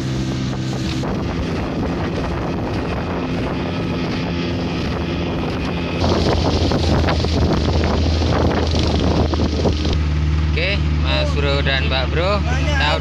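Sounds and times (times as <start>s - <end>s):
wind buffeting microphone: 0.0s - 10.5s
outboard motor running: 0.0s - 13.0s
water rushing past hull: 0.0s - 13.0s.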